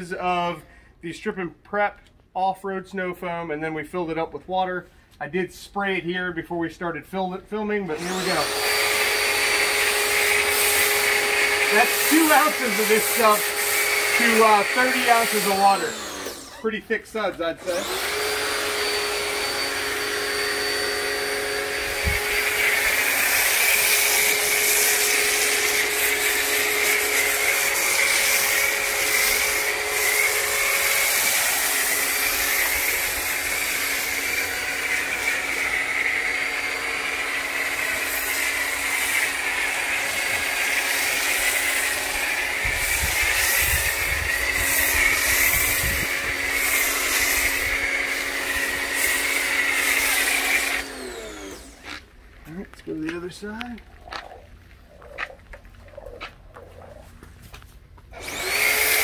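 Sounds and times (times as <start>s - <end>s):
pressure washer whine: 7.8s - 54.8s, 58.1s - 59.0s
foam cannon spraying hiss: 11.7s - 15.7s.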